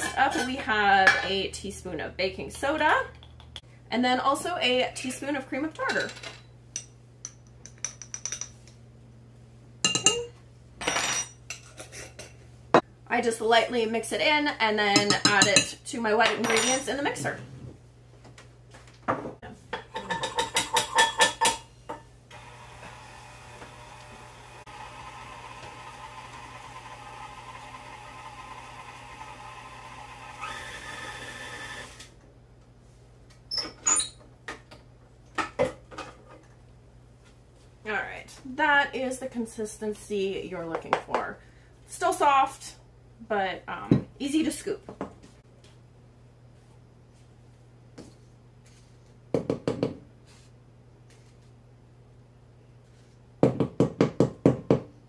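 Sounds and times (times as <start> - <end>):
stand mixer running: 22.3 - 32.0.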